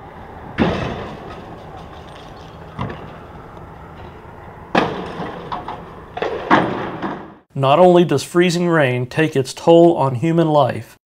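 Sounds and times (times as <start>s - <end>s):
road traffic rush: 0.0s - 7.5s
sudden loud knock: 0.6s - 1.4s, 6.4s - 7.4s.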